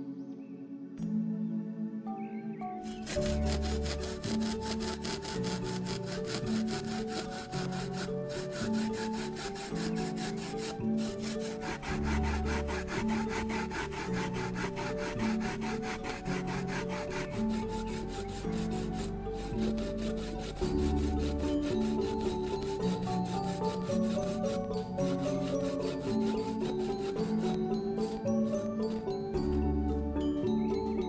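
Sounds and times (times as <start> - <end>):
soft instrumental music: 0.0 - 31.0
coconut rasping on grater: 2.9 - 29.6.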